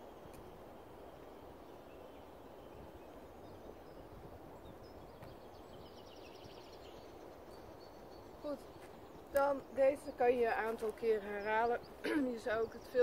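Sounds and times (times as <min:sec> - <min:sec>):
faint outdoor background noise: 0:00.0 - 0:13.0
small birds chirping: 0:00.0 - 0:13.0.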